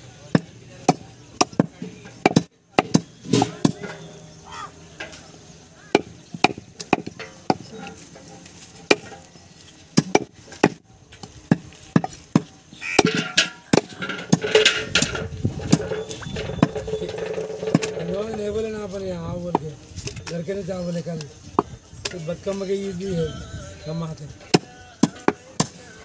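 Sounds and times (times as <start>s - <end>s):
cleaver chopping meat on wood: 0.4s - 3.8s, 5.9s - 7.6s, 10.0s - 10.8s.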